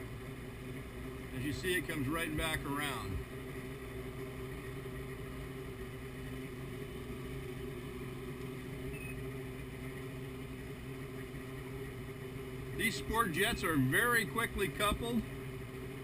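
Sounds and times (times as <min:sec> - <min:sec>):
outboard engine running steadily: 0:00.0 - 0:16.0.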